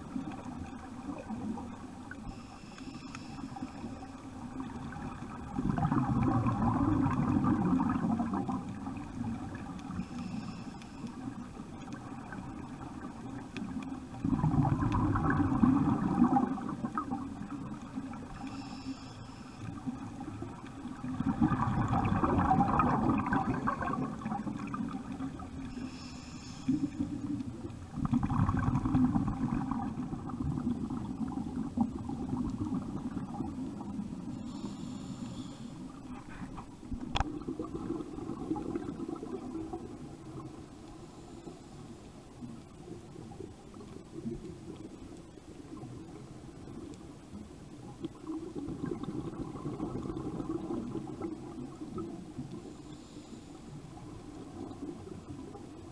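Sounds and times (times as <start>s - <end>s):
regulator inhalation hiss: 2.2s - 4.2s, 9.9s - 11.4s, 18.2s - 20.0s, 25.6s - 27.0s, 34.3s - 36.0s.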